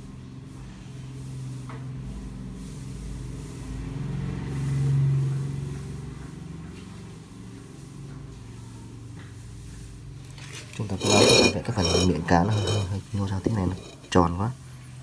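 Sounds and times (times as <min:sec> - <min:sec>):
passing vehicle engine hum: 0:03.2 - 0:08.2.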